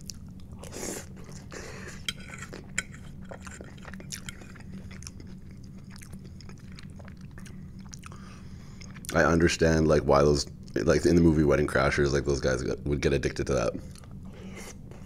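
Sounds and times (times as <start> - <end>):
person chewing food: 0.0 - 9.2, 13.8 - 15.0.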